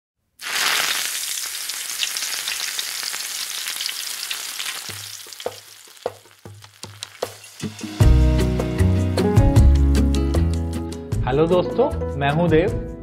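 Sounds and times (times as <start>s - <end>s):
hot oil sizzling and crackling: 0.4s - 8.2s.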